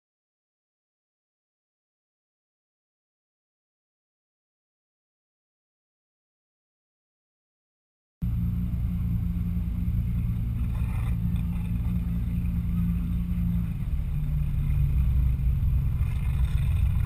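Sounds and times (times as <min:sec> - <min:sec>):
motorboat engine humming: 0:08.2 - 0:17.0.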